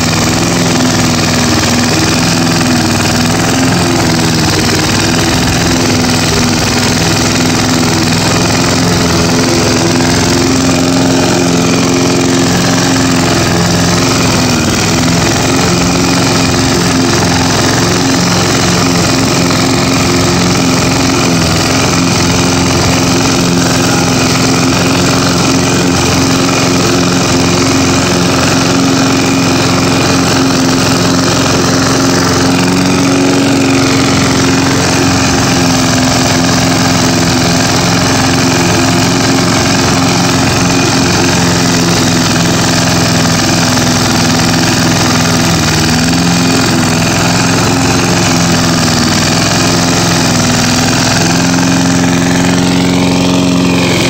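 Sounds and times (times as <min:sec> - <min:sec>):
mower cutting grass: 0:00.0 - 0:54.0
push mower engine running: 0:00.0 - 0:54.0.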